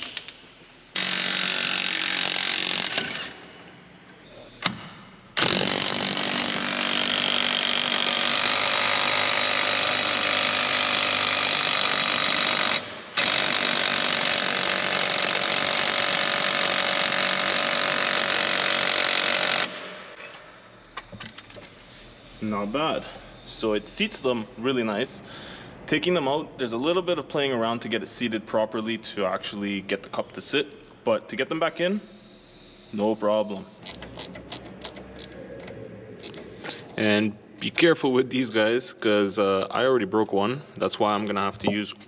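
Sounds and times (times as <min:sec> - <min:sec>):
impact wrench hammering: 0:01.0 - 0:03.6, 0:04.6 - 0:20.4.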